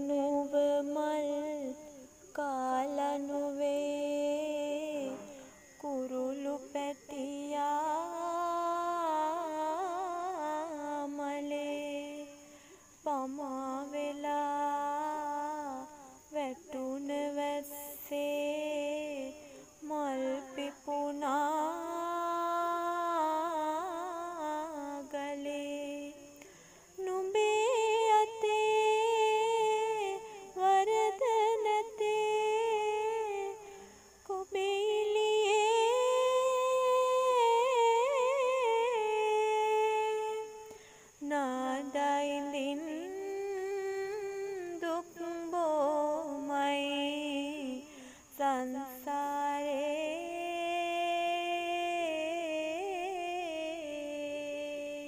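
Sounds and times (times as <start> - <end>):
person singing slow song: 0.0 - 55.0
singer breathing: 12.4 - 13.0, 26.4 - 27.0, 40.7 - 41.2, 47.9 - 48.3.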